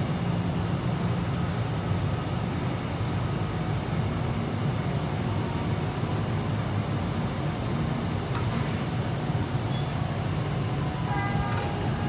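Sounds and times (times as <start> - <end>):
train wheels rumbling on rails: 6.2 - 12.0
brief hiss: 8.4 - 9.0.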